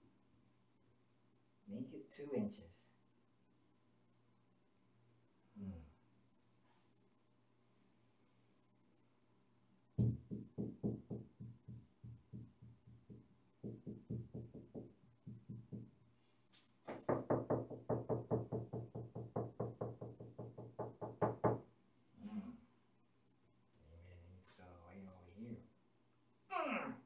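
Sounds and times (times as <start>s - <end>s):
knuckles rapping on tile wall: 9.9s - 21.7s.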